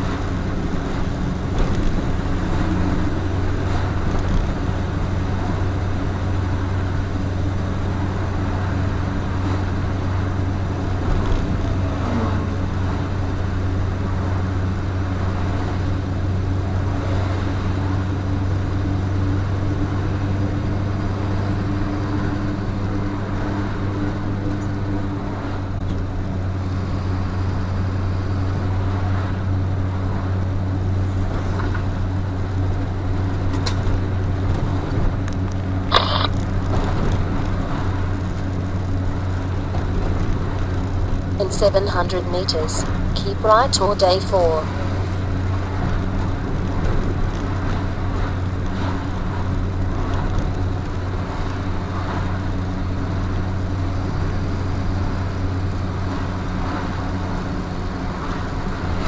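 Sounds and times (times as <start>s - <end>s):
truck engine and tyre drone: 0.0s - 59.0s
short sharp noise: 35.9s - 36.4s.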